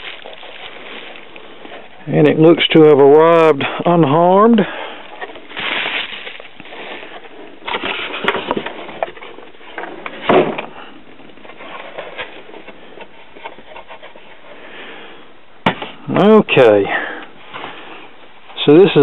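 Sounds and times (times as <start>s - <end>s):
bubble wrap rustling and scraping: 0.0s - 2.8s, 5.1s - 14.6s.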